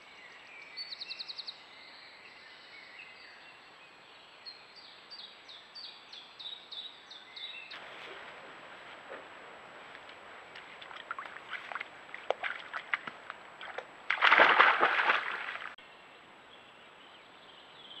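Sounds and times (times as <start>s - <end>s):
animal rustling through grass: 7.7s - 13.5s.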